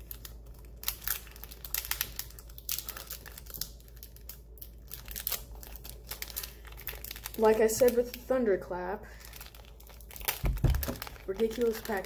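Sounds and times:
packaging crinkling and tearing: 0.0s - 12.0s.

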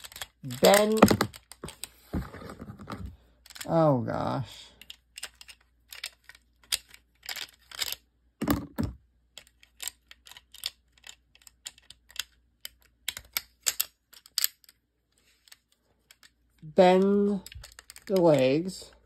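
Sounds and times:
plastic action figure joints clicking: 0.0s - 1.9s, 3.4s - 3.8s, 4.7s - 8.1s, 9.3s - 14.8s, 15.4s - 19.0s.

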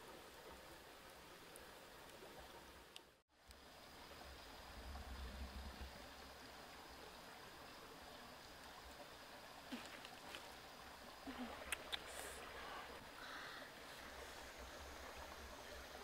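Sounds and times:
flowing stream water: 0.0s - 16.0s.

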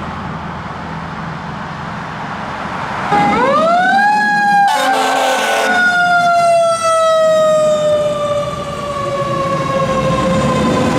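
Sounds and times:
mechanical siren winding down: 3.1s - 10.9s.

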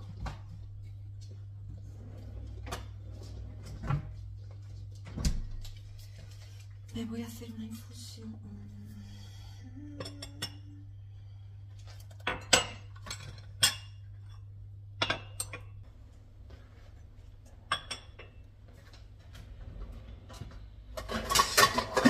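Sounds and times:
low steady hum: 0.0s - 22.0s
dishes and spoon clinking: 11.9s - 15.8s, 17.7s - 18.4s, 21.0s - 22.0s.

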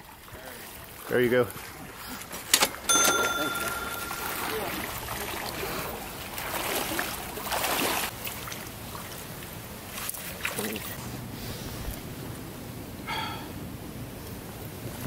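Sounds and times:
stream running: 0.0s - 11.0s
water splashing around legs: 4.4s - 11.0s.

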